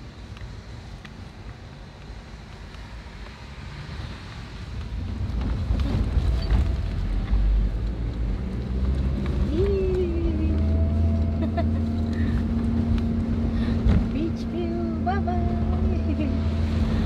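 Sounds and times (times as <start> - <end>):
car engine running: 5.9 - 17.0.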